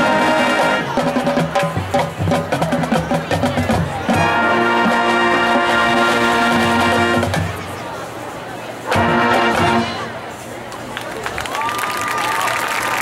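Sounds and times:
busy percussion: 0:00.0 - 0:07.8
marching band playing: 0:00.0 - 0:10.5.

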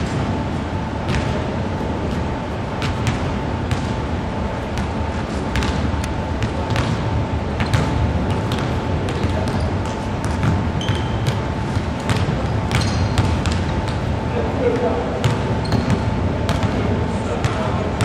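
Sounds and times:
sports hall rumble: 0:00.0 - 0:18.0
basketballs bouncing on wood floor: 0:01.1 - 0:01.5, 0:02.8 - 0:04.0, 0:04.8 - 0:18.0.

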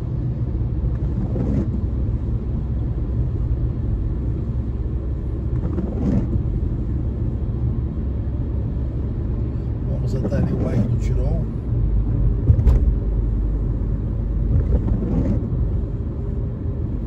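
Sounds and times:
car tyres and engine rumble: 0:00.0 - 0:17.0
windscreen wiper sweeping: 0:00.8 - 0:02.4, 0:05.3 - 0:06.9, 0:12.0 - 0:13.4, 0:14.4 - 0:16.0.

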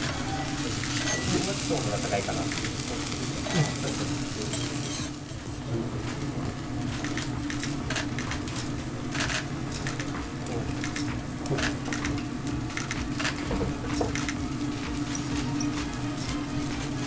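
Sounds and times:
beef sizzling on a griddle: 0:00.0 - 0:06.3, 0:13.4 - 0:17.0.

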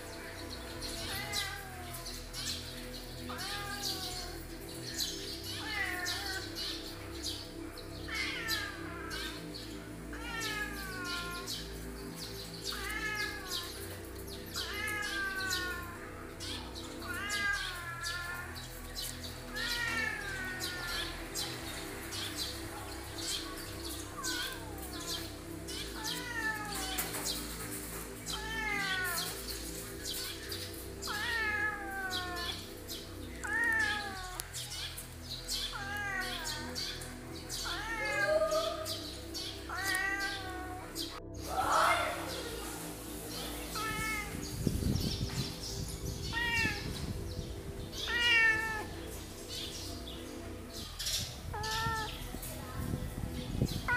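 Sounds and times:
cat meowing: 0:00.9 - 0:02.5, 0:03.2 - 0:04.5, 0:05.6 - 0:06.8, 0:08.1 - 0:09.5, 0:10.1 - 0:11.7, 0:12.5 - 0:21.5, 0:22.1 - 0:41.2, 0:43.6 - 0:45.6, 0:46.2 - 0:49.7, 0:50.8 - 0:52.3.

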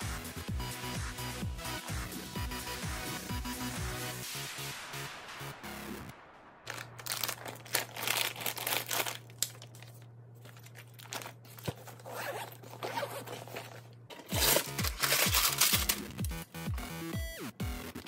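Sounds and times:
lunch bag rustling and zipper: 0:06.7 - 0:16.1
snack wrapper crinkling: 0:06.7 - 0:16.4
plastic lunch box handled: 0:08.5 - 0:16.0.

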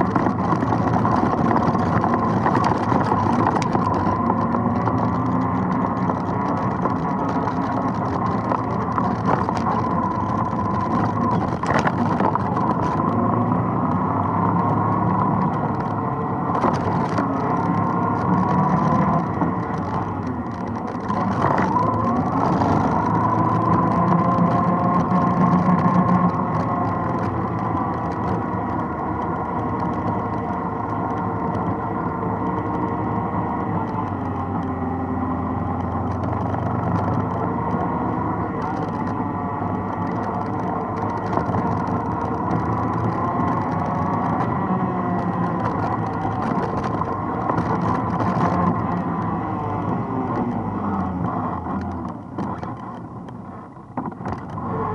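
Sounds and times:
atv engine running: 0:00.0 - 0:54.9.

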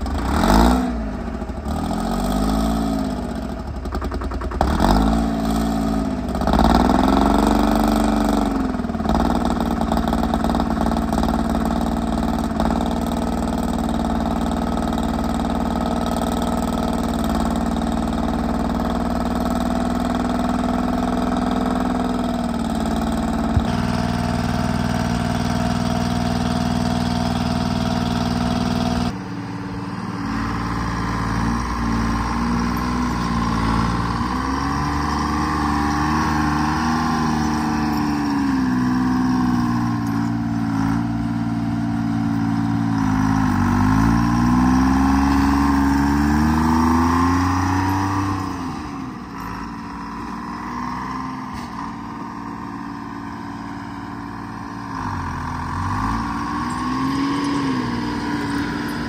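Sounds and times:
diesel engine revving: 0:00.0 - 0:59.0.

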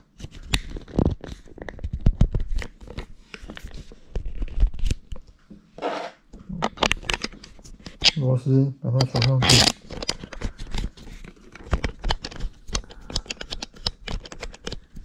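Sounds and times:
camera clicks taps and scrapes: 0:09.0 - 0:15.0.

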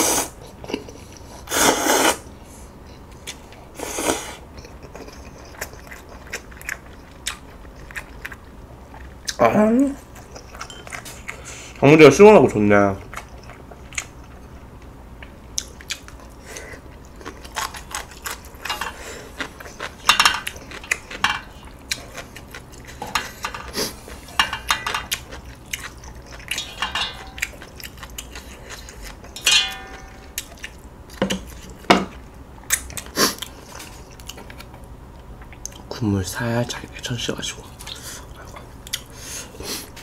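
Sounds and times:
chewing: 0:04.5 - 0:09.4, 0:10.0 - 0:11.8, 0:13.0 - 0:29.4, 0:30.3 - 0:35.9, 0:37.6 - 0:39.5
chopsticks clinking on metal pot: 0:24.4 - 0:25.2, 0:26.4 - 0:27.7, 0:29.3 - 0:30.5.

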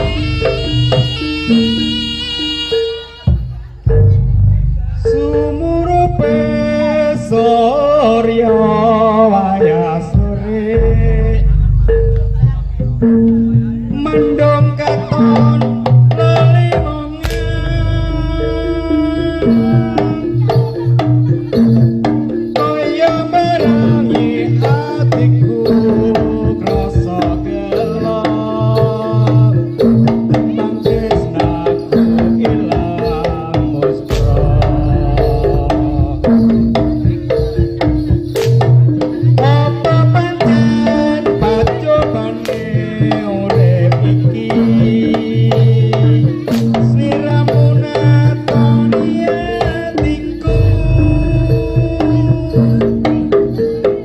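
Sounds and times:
gamelan struck pitched notes: 0:00.0 - 0:54.0
hand-beaten drums: 0:00.0 - 0:54.0
ringing gongs and metal percussion: 0:00.0 - 0:54.0
low gong notes: 0:50.5 - 0:52.4.

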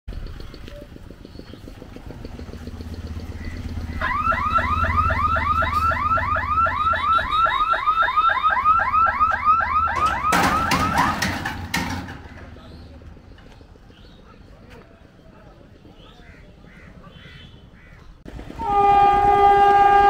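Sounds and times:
electronic warning siren warbling: 0:02.6 - 0:11.2
metallic clatter: 0:10.0 - 0:12.7.

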